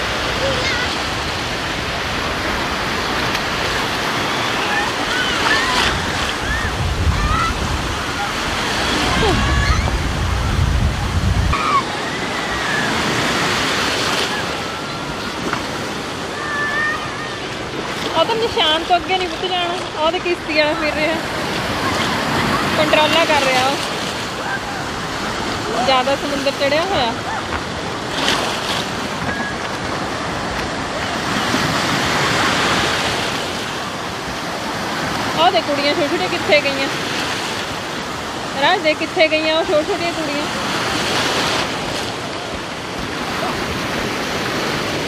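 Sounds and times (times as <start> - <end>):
wind rumble on microphone: 0.0 - 13.5
sea surf breaking: 0.0 - 45.0.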